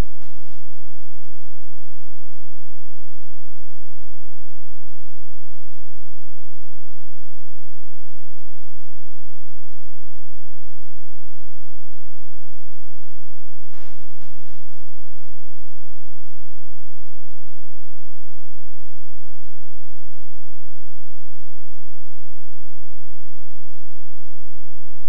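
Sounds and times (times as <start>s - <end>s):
short crackle: 0.0s - 0.8s, 13.7s - 15.4s
electrical hum and buzz: 0.0s - 25.0s.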